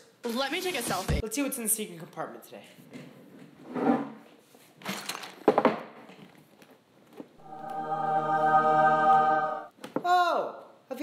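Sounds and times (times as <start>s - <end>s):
choir singing held chord: 7.4s - 9.7s.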